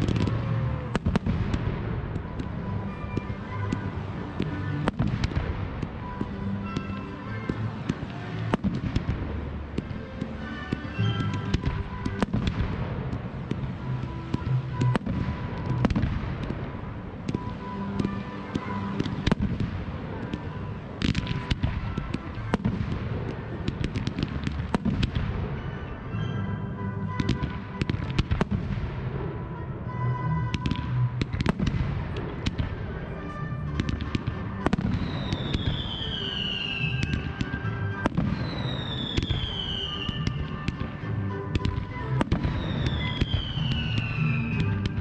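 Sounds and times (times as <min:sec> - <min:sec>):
fireworks bangs and crackling: 0:00.0 - 0:45.0
music playing: 0:00.0 - 0:45.0
falling firework whistles: 0:34.7 - 0:40.5, 0:41.6 - 0:45.0.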